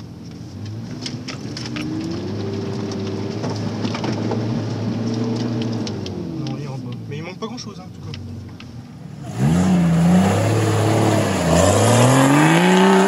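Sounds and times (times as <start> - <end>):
knocks and clatter: 0.0 - 7.1
engine revving: 0.7 - 6.8, 9.0 - 13.0.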